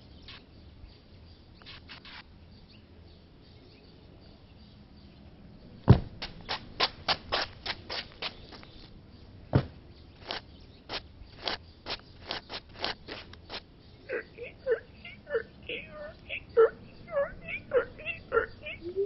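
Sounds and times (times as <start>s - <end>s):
loud thump: 5.8s - 6.3s, 9.5s - 9.8s.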